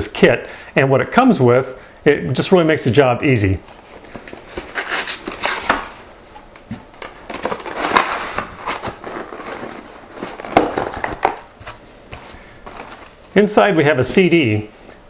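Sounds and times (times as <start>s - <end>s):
cardboard rustling and scraping: 3.6s - 13.4s.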